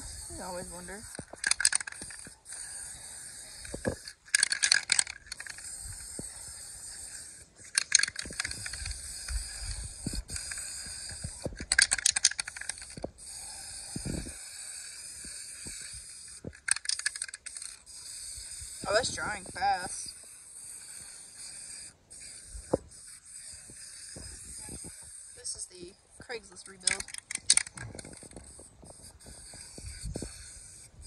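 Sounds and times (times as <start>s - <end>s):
spray paint can hissing: 17.0s - 24.6s, 27.7s - 30.9s.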